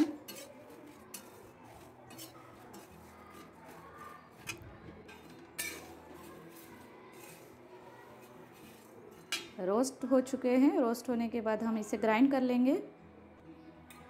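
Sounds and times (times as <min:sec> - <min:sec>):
spatula scraping a metal pan: 0:00.0 - 0:09.6.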